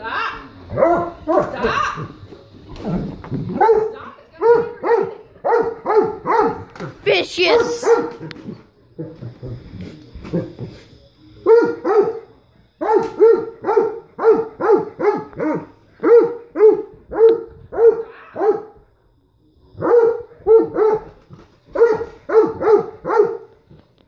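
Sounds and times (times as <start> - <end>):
dog barking: 0.7 - 2.1, 3.5 - 6.9, 7.5 - 8.4, 11.4 - 12.2, 12.8 - 18.8, 19.8 - 23.5.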